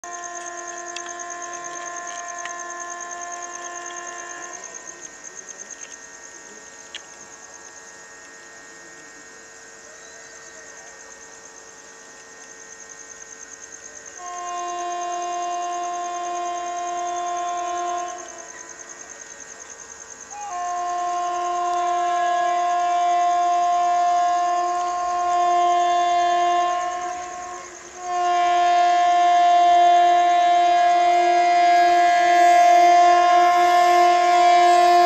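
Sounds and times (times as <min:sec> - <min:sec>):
train horn blasts: 0:00.0 - 0:06.0, 0:14.0 - 0:19.2, 0:20.3 - 0:35.0
crickets chirring: 0:00.0 - 0:35.0.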